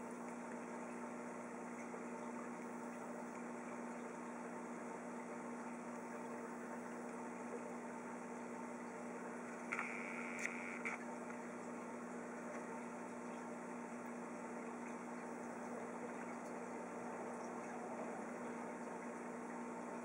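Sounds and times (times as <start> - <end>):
aquarium air pump humming: 0.0 - 20.0
clicks: 9.7 - 11.0.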